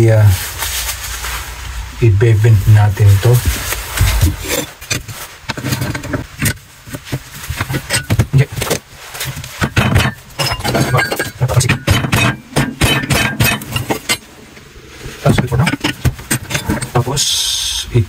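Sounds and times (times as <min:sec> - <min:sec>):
metal knocks and clinks: 0:07.5 - 0:14.4, 0:15.3 - 0:17.0.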